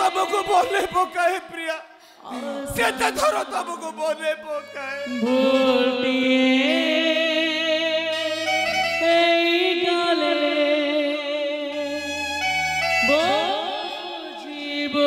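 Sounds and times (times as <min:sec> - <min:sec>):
man speaking: 0:00.0 - 0:05.5
slow melody with vibrato: 0:03.5 - 0:15.0.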